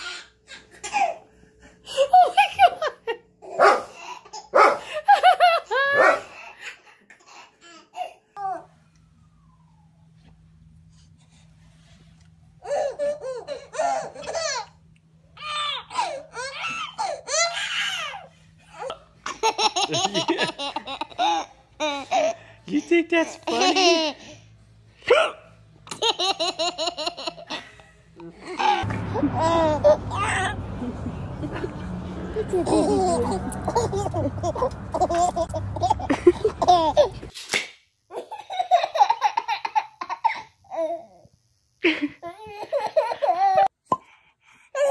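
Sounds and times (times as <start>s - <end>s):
man and child laughing: 1.9s - 3.2s, 4.9s - 6.4s, 19.3s - 22.3s, 23.4s - 24.3s, 28.4s - 37.3s, 41.8s - 43.7s
babies laughing: 12.6s - 14.8s, 28.4s - 37.3s, 38.1s - 41.0s, 41.9s - 43.7s.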